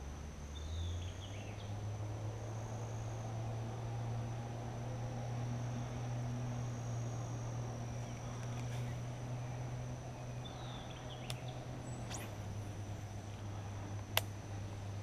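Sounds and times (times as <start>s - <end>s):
insects droning: 0.0s - 15.0s
steady low hum: 0.0s - 15.0s
bird chirping: 8.0s - 12.3s
faint clicks: 11.2s - 11.5s.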